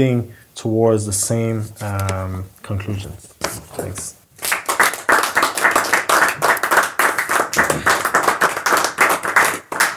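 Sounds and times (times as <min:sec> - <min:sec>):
audience clapping: 0:04.4 - 0:09.9.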